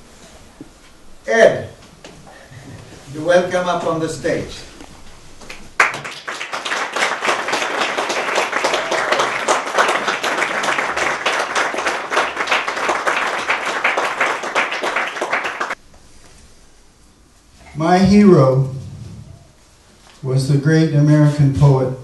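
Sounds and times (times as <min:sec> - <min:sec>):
audience applauding: 0:05.5 - 0:15.8.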